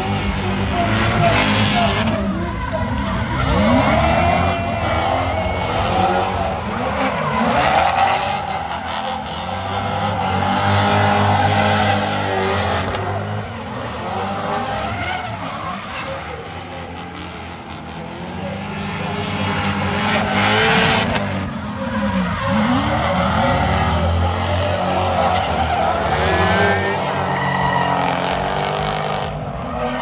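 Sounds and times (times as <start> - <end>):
car engines revving: 0.0 - 30.0
tyres squealing: 18.1 - 30.0.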